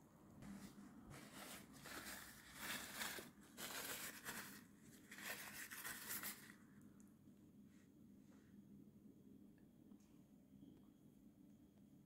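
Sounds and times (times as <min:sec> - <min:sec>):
faint rustling and handling noise: 0:00.2 - 0:08.8.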